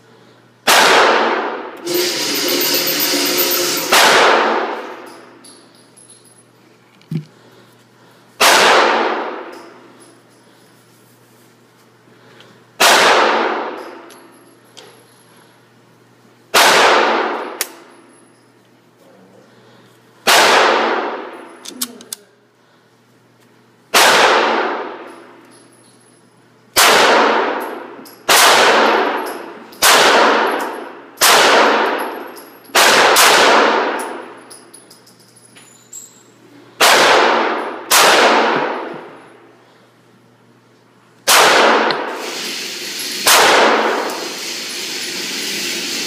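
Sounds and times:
pistol shots echoing indoors: 0:00.6 - 0:05.6, 0:08.4 - 0:10.0, 0:12.8 - 0:14.3, 0:16.5 - 0:18.1, 0:20.2 - 0:21.6, 0:23.9 - 0:25.5, 0:26.7 - 0:34.8, 0:36.7 - 0:39.8, 0:41.2 - 0:46.0.

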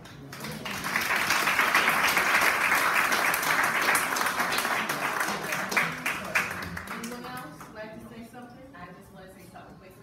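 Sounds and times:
audience applauding: 0:00.2 - 0:07.4.

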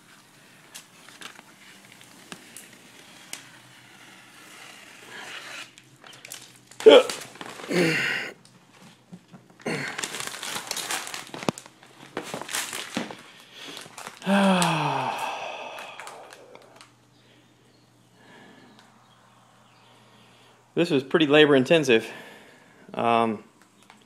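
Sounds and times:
contact paper peeling and crinkling: 0:00.0 - 0:07.7, 0:09.6 - 0:14.2.

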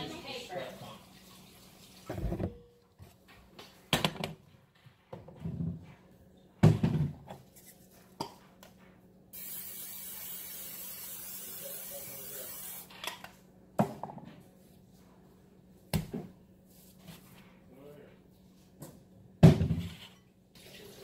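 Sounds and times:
aerosol spray hissing: 0:09.4 - 0:12.9.

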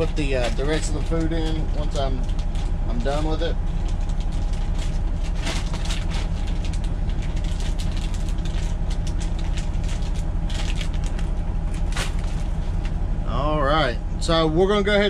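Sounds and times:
truck engine idling: 0:00.0 - 0:15.0
plastic packaging crinkling: 0:02.2 - 0:12.6.

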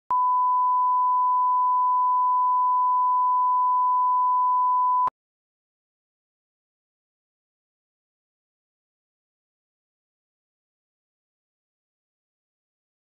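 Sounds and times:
test tone beep: 0:00.1 - 0:05.1.

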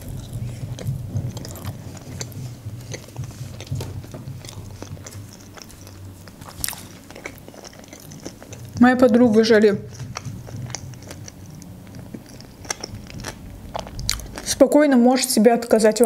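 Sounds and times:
person chewing food: 0:00.0 - 0:14.6.

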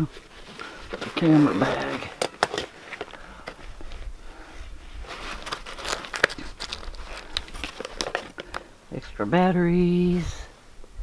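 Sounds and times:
padded bag rustling: 0:00.0 - 0:08.7
plastic cases clicking and knocking: 0:00.9 - 0:03.7, 0:05.4 - 0:08.7.

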